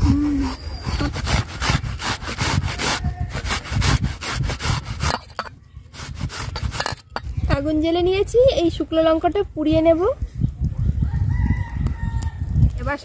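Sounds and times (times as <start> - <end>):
banana scraping on metal grater: 0.2 - 7.2.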